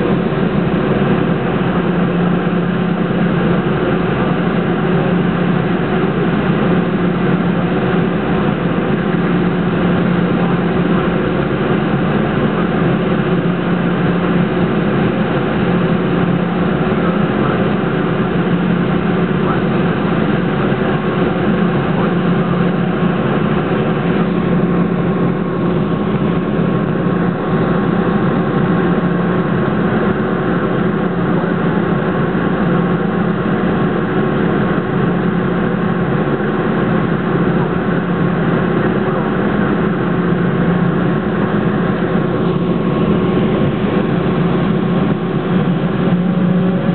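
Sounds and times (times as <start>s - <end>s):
jet engines idling in cabin: 0.0s - 46.9s.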